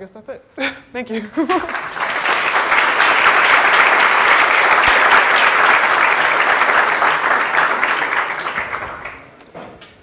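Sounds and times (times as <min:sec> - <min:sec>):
audience applauding: 0:01.4 - 0:09.4.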